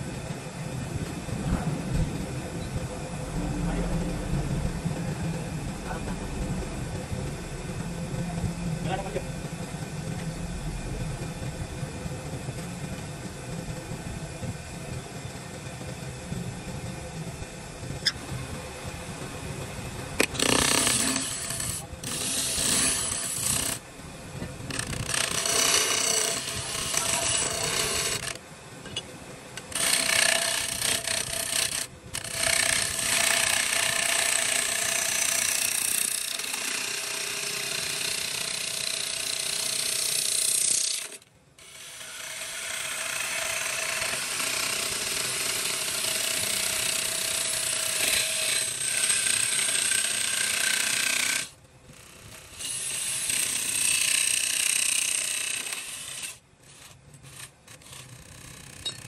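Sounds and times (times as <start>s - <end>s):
power tool cutting wood: 20.2s - 23.8s, 24.7s - 28.4s, 29.6s - 51.5s.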